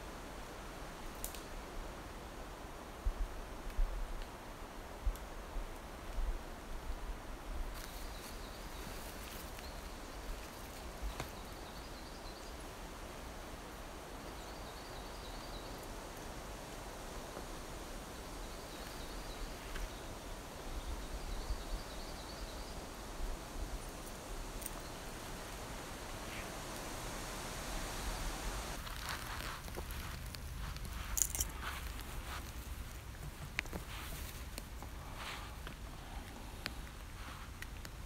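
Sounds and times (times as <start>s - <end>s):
steady background hiss: 0.0s - 38.0s
footsteps snapping twigs: 28.8s - 34.9s.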